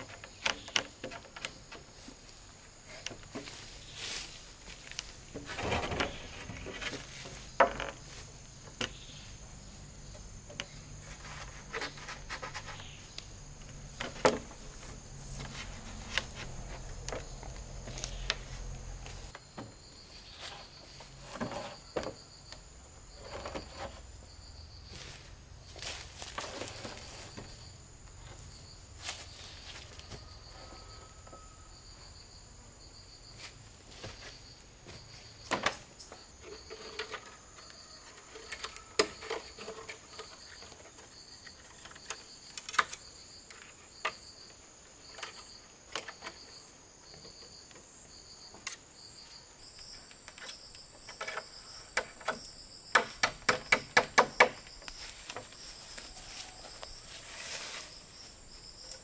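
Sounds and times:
bamboo knocks and clicks: 0.0s - 2.2s, 4.9s - 9.0s, 11.7s - 19.8s, 35.4s - 37.3s, 50.1s - 55.6s
insect chorus trilling: 0.0s - 59.0s.

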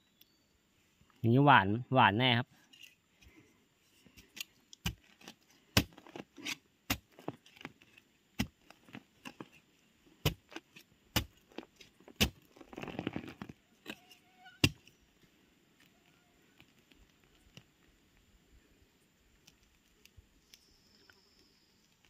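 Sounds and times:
hands scraping loose soil: 2.6s - 18.2s.

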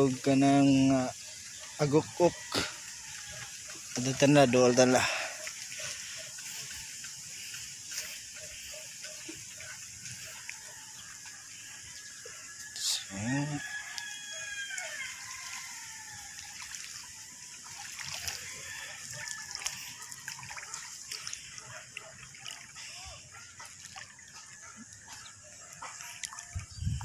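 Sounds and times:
rooster crowing: 10.2s - 16.6s, 18.2s - 20.4s.

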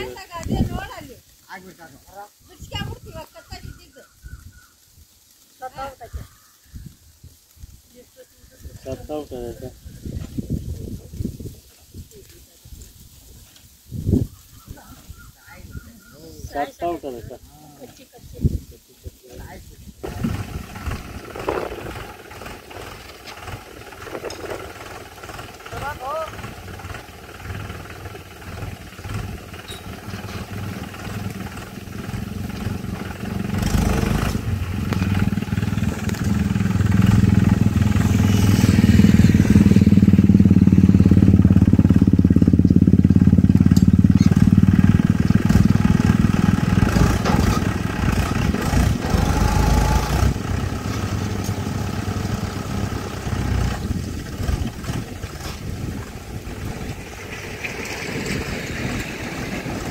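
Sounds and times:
vehicle engine passing by: 20.0s - 59.9s.

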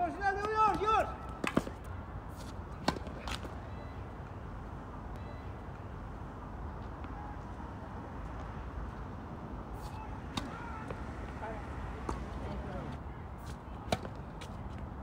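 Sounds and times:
tennis racket hitting ball: 1.4s - 1.8s.

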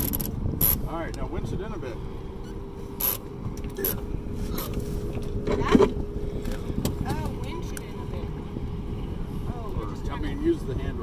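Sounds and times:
winch squeaking: 0.0s - 0.9s, 2.4s - 4.8s.

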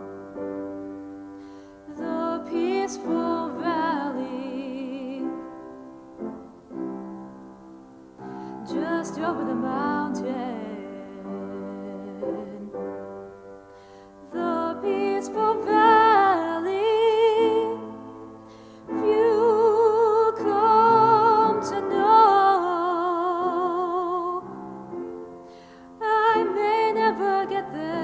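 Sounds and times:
piano chords: 0.0s - 28.0s
person singing with vibrato: 1.6s - 7.4s, 8.2s - 24.8s, 25.5s - 28.0s.

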